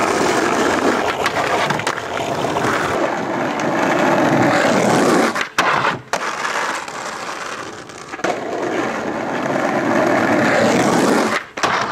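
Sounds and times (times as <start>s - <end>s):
skateboard popping: 0.0s - 11.9s
skateboard scraping along bench: 0.0s - 11.9s
skateboard wheels rolling on asphalt: 0.0s - 11.9s
skateboard landing on bench: 11.2s - 11.9s.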